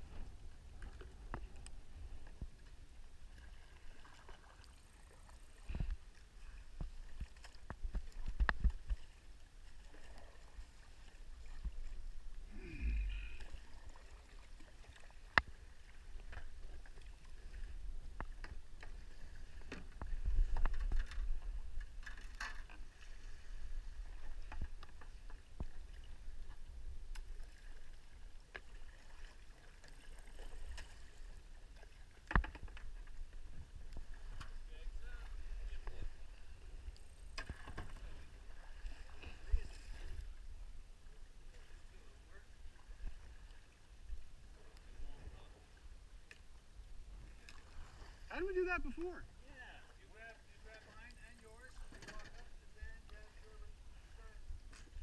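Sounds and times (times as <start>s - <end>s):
paddle strokes: 0.0s - 55.0s
water lapping at hull: 0.0s - 55.0s
knocks and clicks of paddles: 32.3s - 33.0s.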